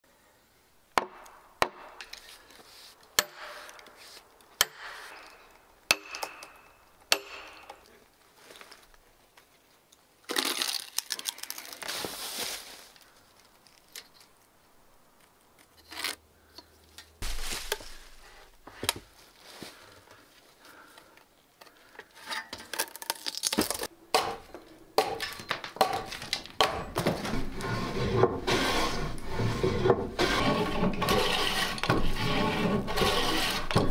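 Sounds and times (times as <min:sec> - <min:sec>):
hand plane shaving wood: 0:27.2 - 0:33.9.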